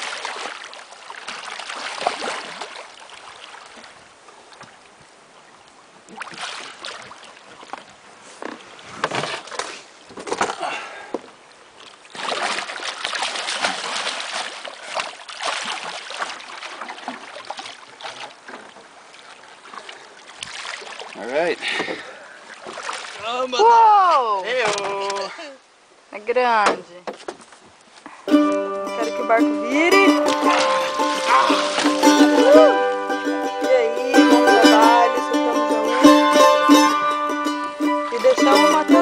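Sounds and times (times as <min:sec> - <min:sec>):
fish thrashing and splashing: 0:00.0 - 0:03.6, 0:12.1 - 0:18.7, 0:30.4 - 0:32.2.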